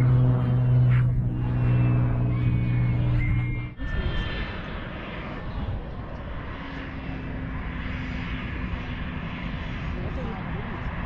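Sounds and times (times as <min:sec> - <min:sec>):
faint steady hum: 0:00.0 - 0:04.8
airplane engine rumble: 0:00.0 - 0:11.0.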